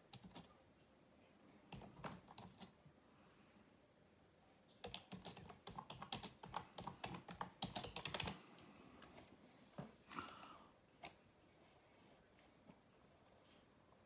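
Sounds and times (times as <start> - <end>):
typing on computer keyboard: 0.0 - 0.6, 1.7 - 2.8, 4.8 - 8.4.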